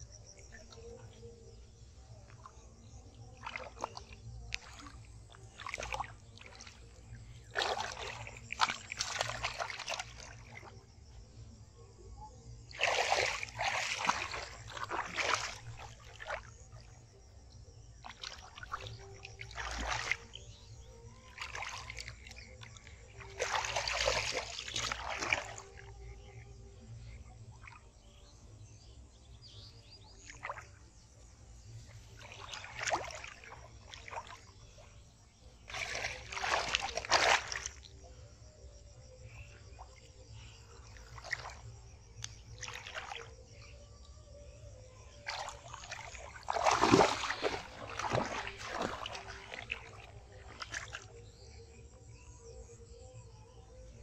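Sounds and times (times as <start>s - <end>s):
hands splashing in muddy water: 3.3s - 10.7s, 12.7s - 16.6s, 18.0s - 20.6s, 21.2s - 25.8s, 32.1s - 34.6s, 35.6s - 37.9s, 41.0s - 43.3s, 45.1s - 51.2s.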